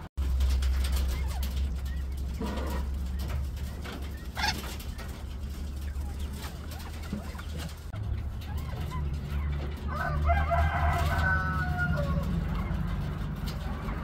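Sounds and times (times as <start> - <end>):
quail calling: 0.9 - 10.0.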